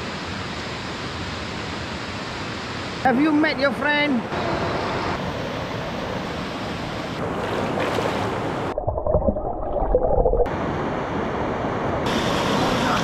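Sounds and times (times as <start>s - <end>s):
rushing water: 7.2s - 10.5s.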